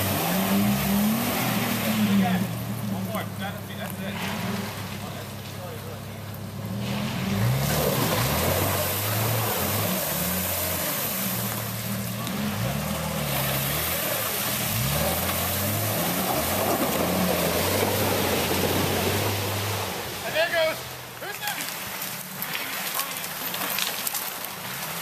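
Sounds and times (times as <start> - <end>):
engine revving: 0.0 - 21.1
water splashing and ice breaking: 6.7 - 25.0.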